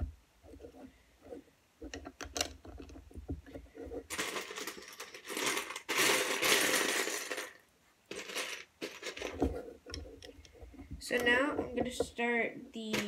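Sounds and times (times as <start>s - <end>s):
plastic toy bricks clattering: 4.0s - 10.3s.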